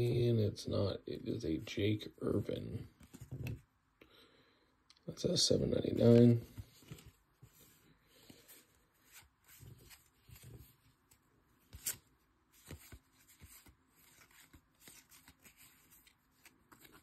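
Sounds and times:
trading cards rustling and clicking: 0:08.2 - 0:17.0.

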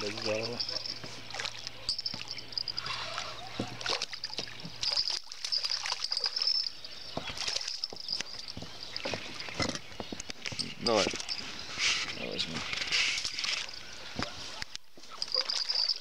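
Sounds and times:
fish splashing in water: 0:00.0 - 0:06.7, 0:07.3 - 0:08.3.

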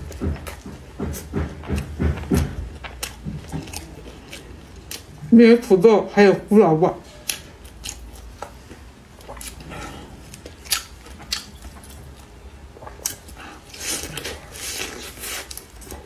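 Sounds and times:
person chewing food: 0:00.0 - 0:05.8, 0:07.1 - 0:16.0.

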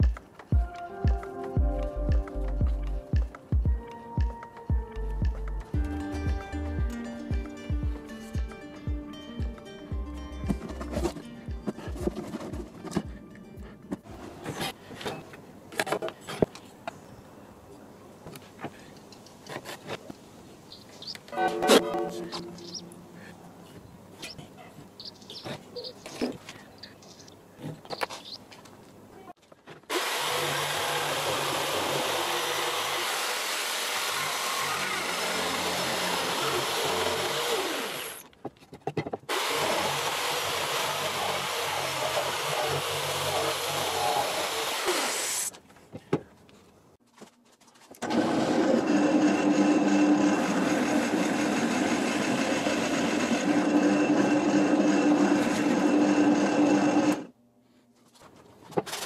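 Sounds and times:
electric jigsaw cutting wood: 0:29.9 - 0:38.2, 0:39.3 - 0:45.5, 0:48.0 - 0:57.3
drill press humming: 0:48.0 - 0:57.3.

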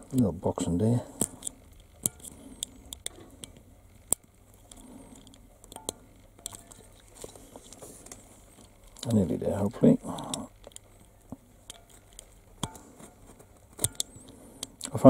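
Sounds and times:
blade prying plastic clicks: 0:13.8 - 0:14.8.

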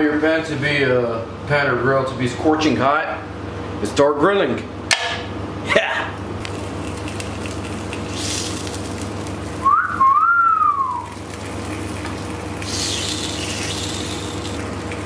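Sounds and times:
pepperoni sizzling on grill: 0:06.1 - 0:15.0.

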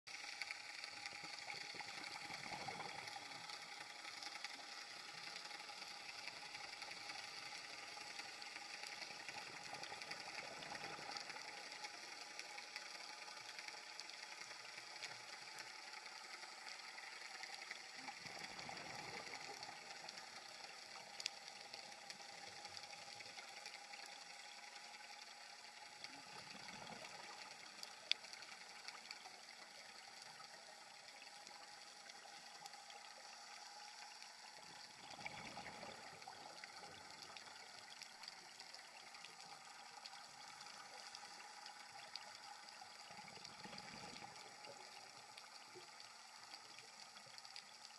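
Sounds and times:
underwater hiss: 0:00.2 - 0:47.4
regulator bubbles gurgling: 0:00.4 - 0:04.0, 0:17.6 - 0:21.0, 0:25.9 - 0:33.2, 0:33.9 - 0:46.4.

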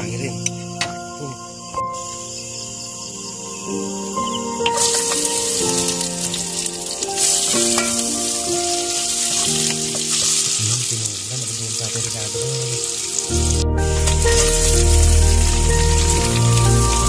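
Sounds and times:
background music: 0:00.0 - 0:17.0
vegetables sizzling in hot oil: 0:04.7 - 0:17.0.

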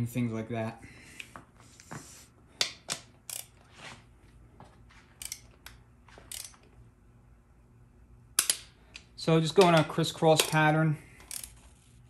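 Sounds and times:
torque wrench clicking: 0:03.3 - 0:03.5, 0:05.2 - 0:06.6.

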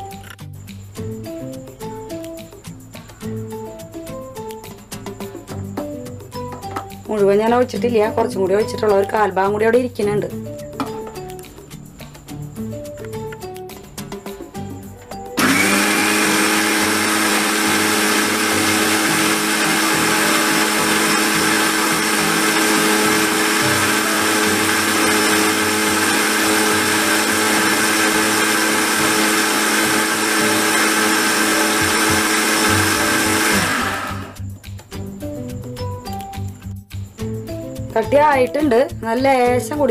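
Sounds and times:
mixer grinder whirring: 0:15.4 - 0:34.4.

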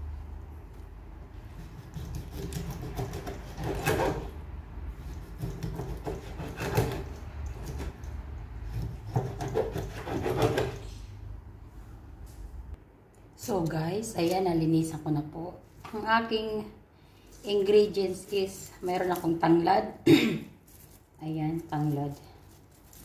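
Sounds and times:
knife scraping fish on cutting board: 0:01.6 - 0:04.4, 0:05.0 - 0:08.0, 0:08.7 - 0:10.9.

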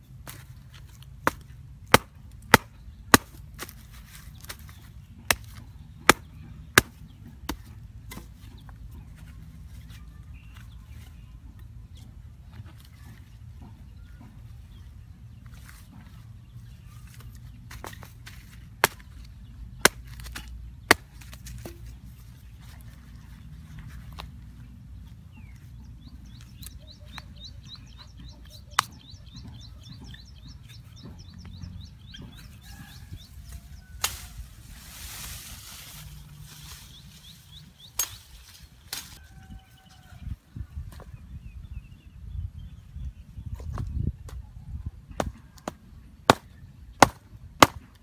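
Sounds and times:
rustle of handling: 0:32.7 - 0:39.4.

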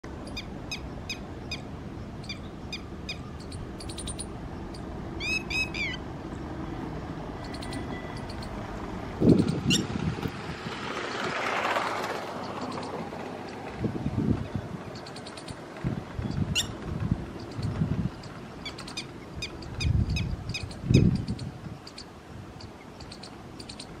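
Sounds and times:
lapwing calling: 0:00.2 - 0:09.9, 0:14.8 - 0:15.6, 0:16.3 - 0:24.0.

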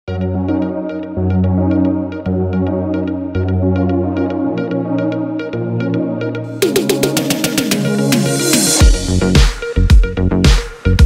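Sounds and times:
synth chords over bass: 0:00.1 - 0:11.0
sharp high ticking beat: 0:06.6 - 0:09.5.

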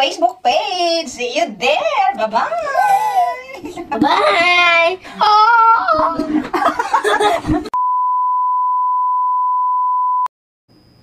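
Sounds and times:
electronic beep tone: 0:07.8 - 0:10.3.

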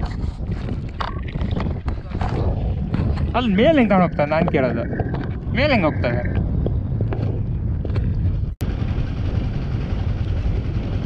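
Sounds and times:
wind on microphone: 0:00.0 - 0:11.0
motorcycle engine running: 0:06.4 - 0:11.0.

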